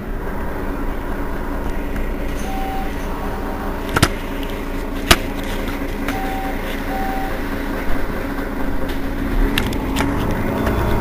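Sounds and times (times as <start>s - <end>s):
bus diesel engine idling: 0.0s - 11.0s
short beeps: 2.4s - 3.1s, 6.1s - 7.4s.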